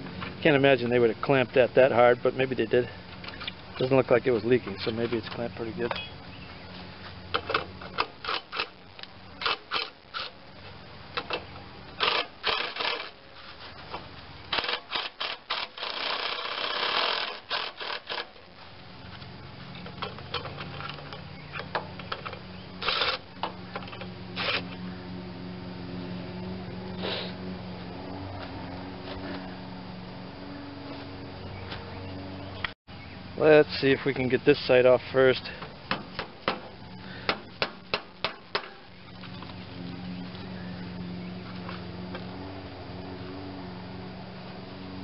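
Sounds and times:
steady low hum: 0.0s - 45.0s
ratchet rasping: 7.3s - 8.8s, 12.0s - 13.2s, 14.5s - 18.5s.

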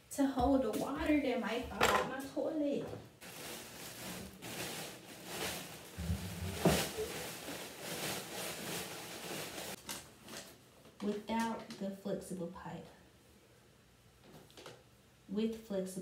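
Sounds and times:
plastic bag crinkling: 3.2s - 10.6s.

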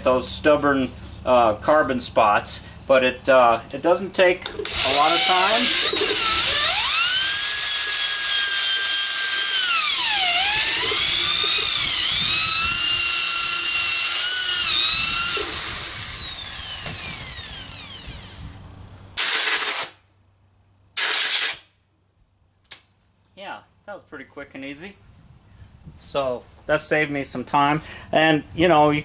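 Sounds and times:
electric drill whining: 4.6s - 18.6s.

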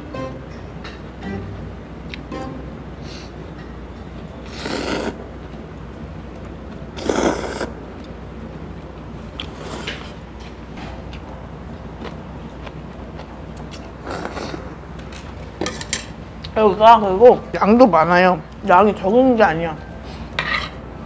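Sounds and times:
noodles being slurped: 4.5s - 5.2s, 7.0s - 7.8s.

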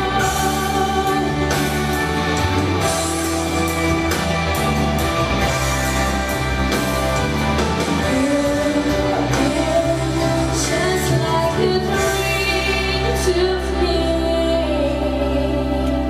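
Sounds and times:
instrumental backing music: 0.0s - 16.0s.

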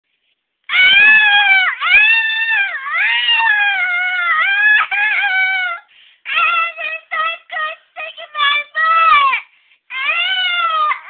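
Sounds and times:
woman wailing: 0.7s - 5.8s
woman yelping: 0.7s - 5.8s.

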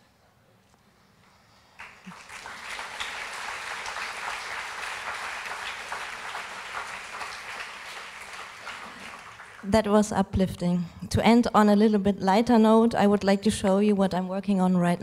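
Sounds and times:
audience applauding: 1.8s - 9.8s.

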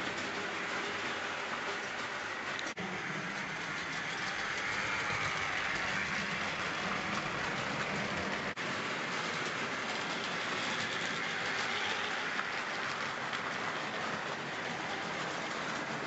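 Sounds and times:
model train running on track: 0.0s - 16.0s.

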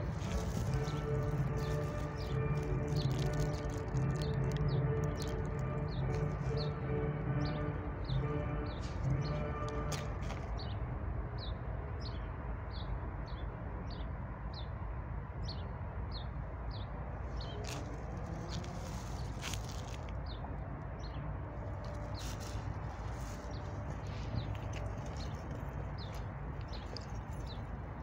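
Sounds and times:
distant traffic rumble: 0.0s - 13.9s, 15.9s - 28.0s.

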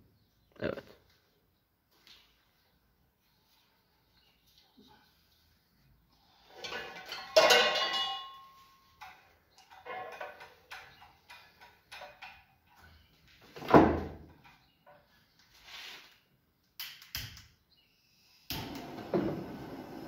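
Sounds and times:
metal tools clattering on workbench: 6.6s - 12.9s
metal part ringing: 7.1s - 8.7s.

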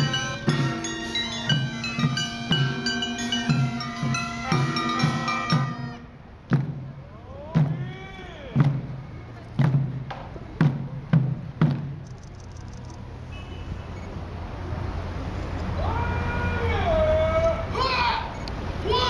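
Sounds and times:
ceremonial music: 0.0s - 7.0s
barrel drum strikes: 9.6s - 12.0s.

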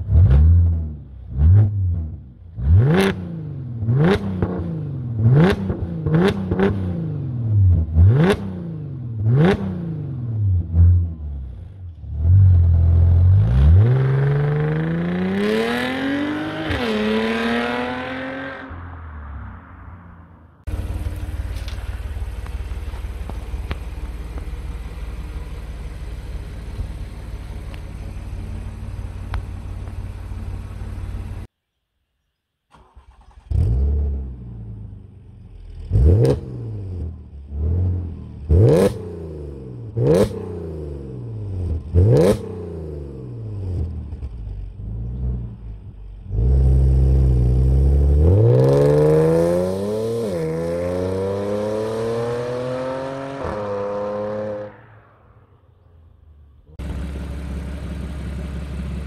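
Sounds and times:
car accelerating away: 12.4s - 23.8s, 46.2s - 55.5s
car exhaust throttle blips: 20.7s - 31.5s
engine idle rumble: 20.7s - 31.5s, 55.9s - 59.0s.

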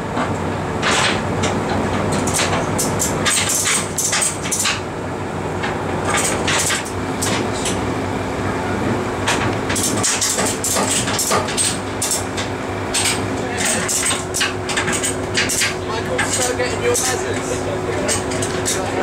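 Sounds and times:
metallic clicks and clanks: 0.8s - 4.8s, 9.3s - 17.2s.

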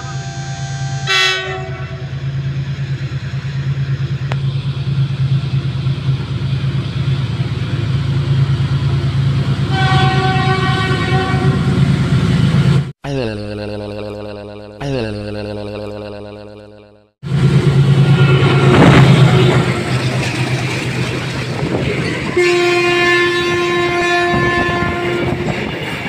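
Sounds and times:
locomotive horn blast: 0.0s - 2.3s, 9.7s - 11.9s, 17.7s - 19.9s, 22.2s - 26.0s
diesel locomotive engine throbbing: 0.0s - 26.0s.

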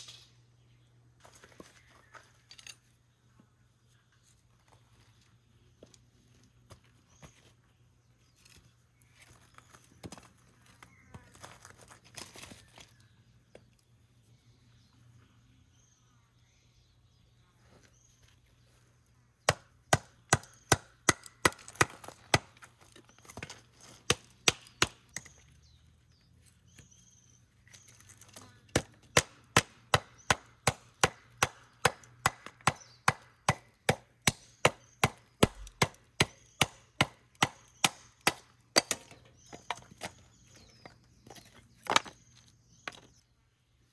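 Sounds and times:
firewood being chopped: 19.4s - 25.4s, 27.7s - 42.2s.

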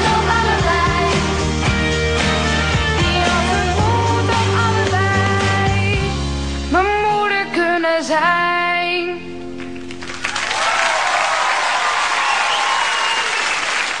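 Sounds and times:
boy singing pop song: 0.0s - 1.5s, 2.4s - 9.3s
audience applauding and cheering: 9.6s - 14.0s.

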